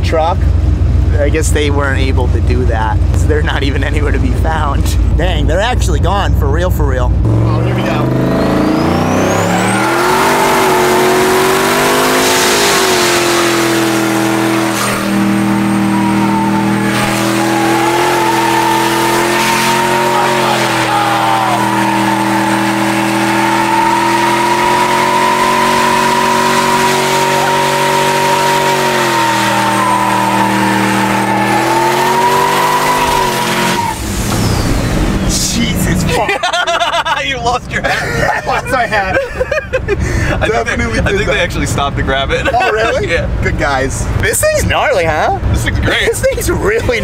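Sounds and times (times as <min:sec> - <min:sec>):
truck engine at high revs: 0:00.0 - 0:47.0
tyres squealing: 0:09.0 - 0:35.9.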